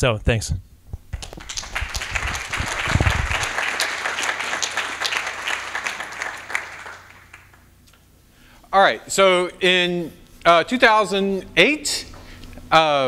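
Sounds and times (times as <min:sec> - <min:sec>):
audience applauding: 0:01.1 - 0:07.7.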